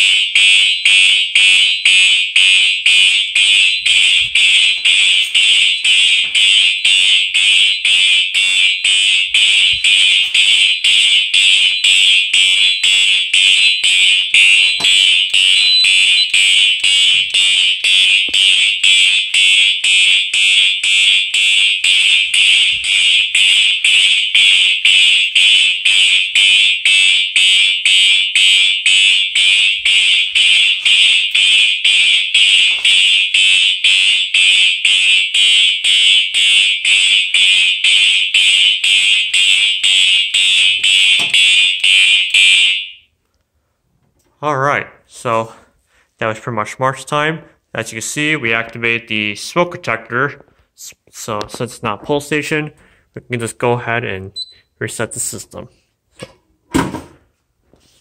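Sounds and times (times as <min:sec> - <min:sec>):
fire alarm horns pulsing: 0:00.0 - 0:43.2.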